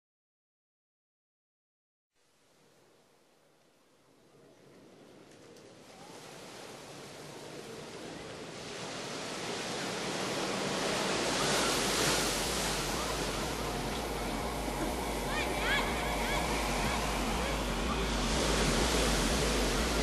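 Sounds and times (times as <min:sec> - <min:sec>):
ocean waves rushing: 0:04.8 - 0:20.0.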